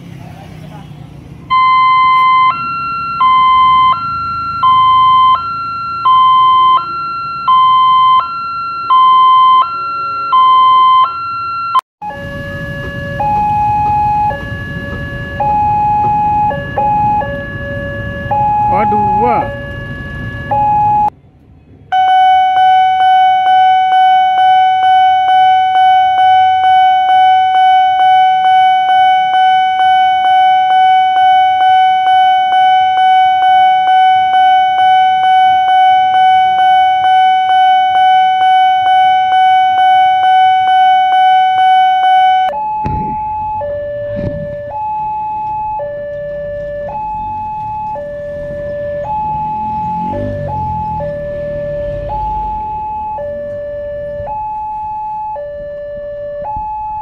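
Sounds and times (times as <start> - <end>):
level crossing warning bell: 1.5 - 21.1, 22.0 - 57.0
two-tone crossing alarm: 1.5 - 21.2, 21.9 - 57.0
low thumps: 12.2 - 21.1, 42.6 - 54.8.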